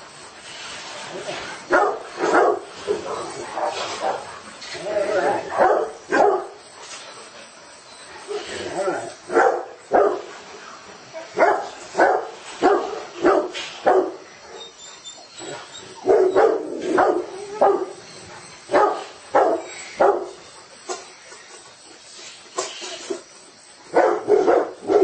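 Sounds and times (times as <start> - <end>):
dog barking: 1.7 - 2.7, 5.5 - 6.6, 9.3 - 10.3, 11.4 - 14.6, 16.0 - 18.0, 18.7 - 20.4, 23.9 - 25.0.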